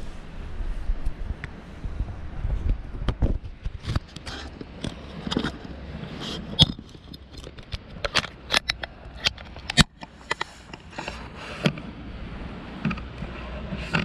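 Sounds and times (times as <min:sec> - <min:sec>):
fishing gear clicking and knocking: 0:03.1 - 0:11.9.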